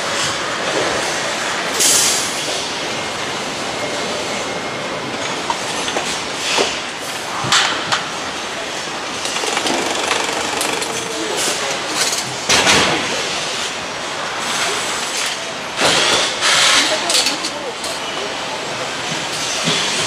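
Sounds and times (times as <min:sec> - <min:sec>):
mechanical assembly line din: 0:05.2 - 0:20.0.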